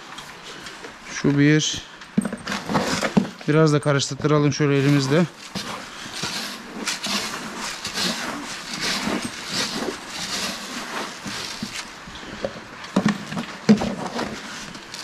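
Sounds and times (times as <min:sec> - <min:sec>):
hand stirring dry feed: 0:04.5 - 0:15.0.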